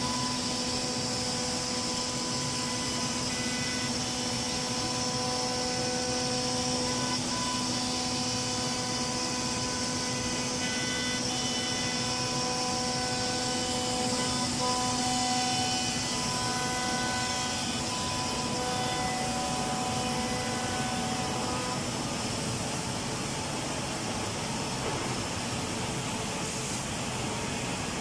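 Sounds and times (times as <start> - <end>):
router spindle whining: 0.0 - 24.7
rushing hiss of machine noise: 0.0 - 28.0.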